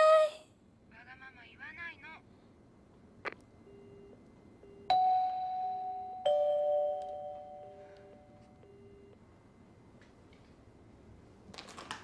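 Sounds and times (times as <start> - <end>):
telephone busy tone beeps: 3.7 - 9.2
two-note doorbell chime: 4.9 - 8.5.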